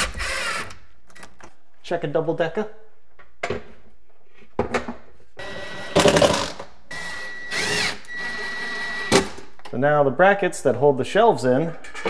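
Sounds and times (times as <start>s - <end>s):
cordless drill whining: 0.0s - 0.8s, 5.4s - 9.2s.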